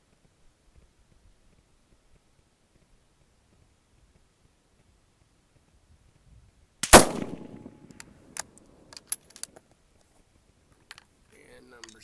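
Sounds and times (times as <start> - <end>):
rifle shot: 6.8 - 8.0
rifle bolt clicks: 6.8 - 9.5.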